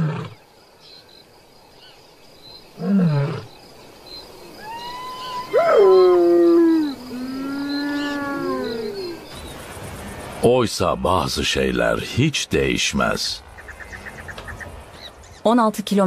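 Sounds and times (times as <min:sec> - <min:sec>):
lion moaning call: 0:00.0 - 0:00.4, 0:02.8 - 0:03.5, 0:04.6 - 0:09.3
hyenas whooping: 0:04.6 - 0:09.3.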